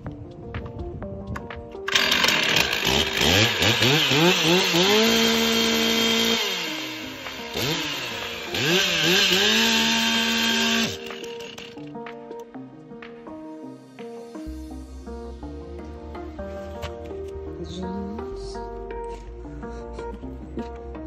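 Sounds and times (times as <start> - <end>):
chainsaw engine revving: 1.9 - 11.8.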